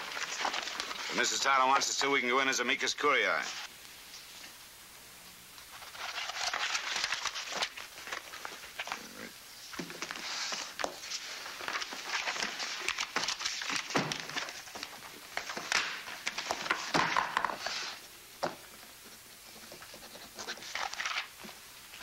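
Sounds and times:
paper rustling and crinkling: 0.0 - 2.3, 5.7 - 9.0, 9.7 - 18.0, 19.4 - 22.0.

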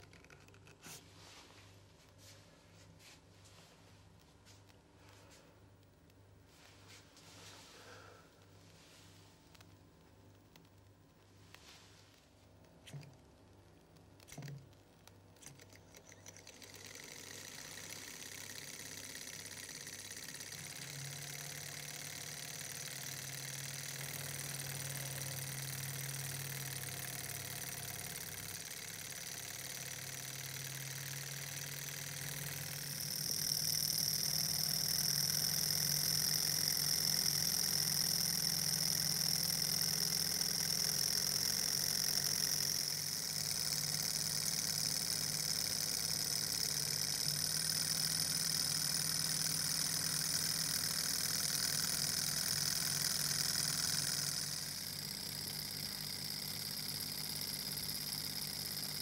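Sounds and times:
model engine mechanical whirr: 14.0 - 59.0.

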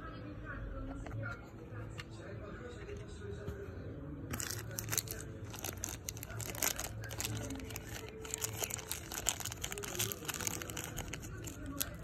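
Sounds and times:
plastic bag crinkling: 4.3 - 12.0.

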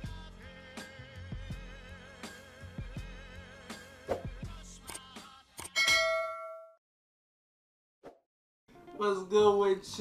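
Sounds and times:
bell ding: 5.8 - 6.8.

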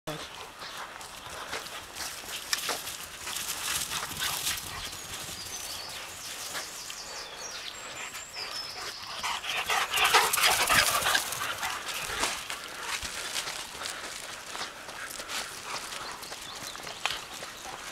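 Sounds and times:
dogs running on grass: 0.1 - 17.9
dogs playing noises: 7.9 - 17.9.

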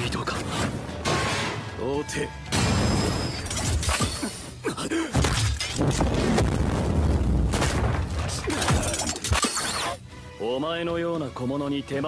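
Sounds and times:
debris breaking: 5.2 - 9.4.

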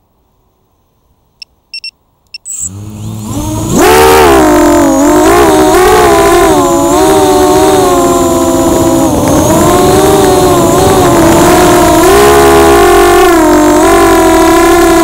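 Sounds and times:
short beeps: 1.4 - 2.7
drone motors whining: 2.4 - 15.0.

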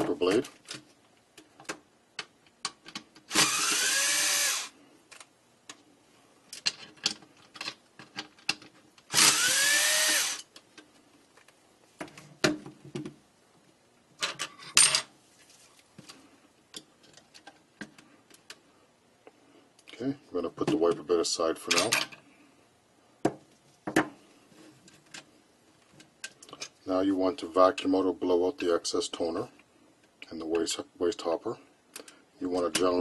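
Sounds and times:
cordless electric screwdriver whine: 3.3 - 4.7, 9.1 - 10.5.

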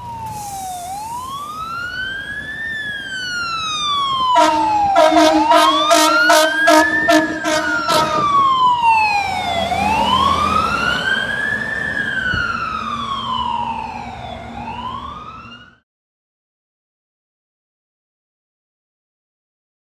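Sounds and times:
fire engine siren wailing: 0.0 - 15.8
vehicle horn blast: 4.4 - 8.4.

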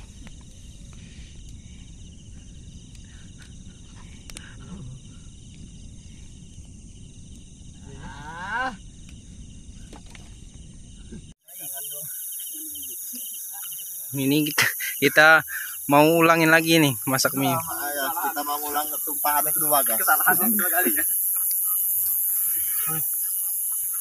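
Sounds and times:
hiss: 0.0 - 6.8, 11.0 - 17.4, 18.2 - 24.0
crickets chirping: 0.0 - 24.0.

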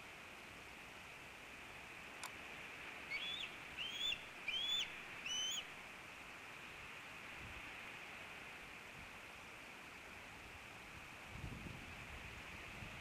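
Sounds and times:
steady hiss: 0.0 - 13.0
faint click: 2.2 - 2.4
eagle whistled calls: 3.1 - 5.7.

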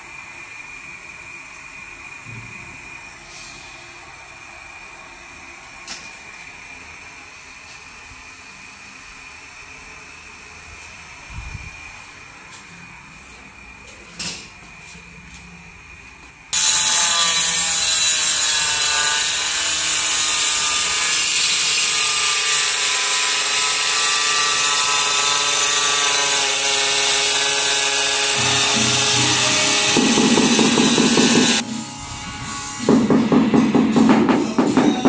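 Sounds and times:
angle grinder cutting tile: 16.6 - 33.2.

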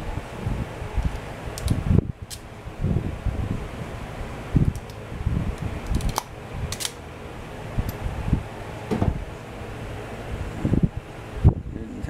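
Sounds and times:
heat gun fan blowing: 0.0 - 12.0
knocks from handling wires: 8.9 - 9.2.

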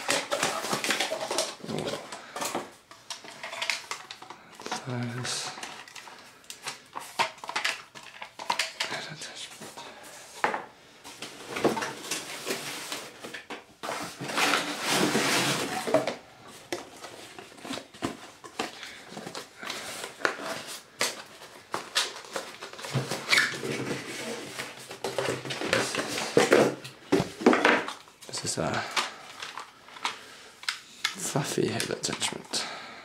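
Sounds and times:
cardboard rustling and scraping: 0.0 - 3.9, 11.0 - 28.8.

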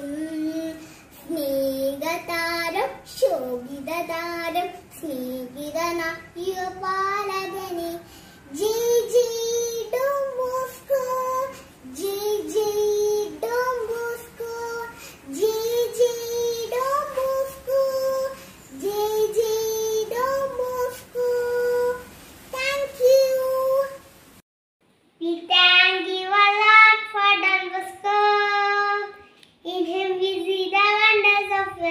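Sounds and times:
girl singing solo: 0.0 - 24.1.

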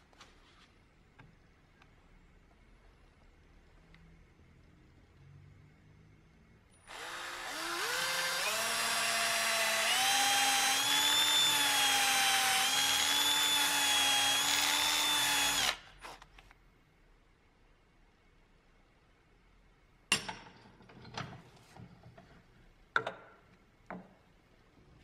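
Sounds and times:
cordless drill boring into wood: 6.9 - 16.3.

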